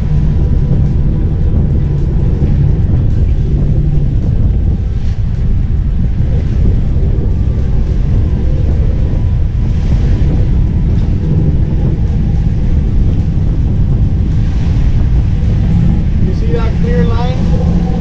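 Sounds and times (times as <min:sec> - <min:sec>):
boat engines rumbling: 0:00.0 - 0:18.0
wind and wake noise: 0:00.0 - 0:18.0.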